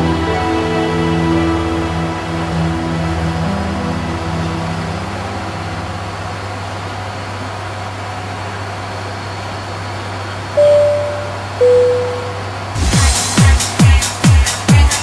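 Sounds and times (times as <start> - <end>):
turboprop engines droning: 0.0 - 13.0
electronic tone: 10.6 - 12.7.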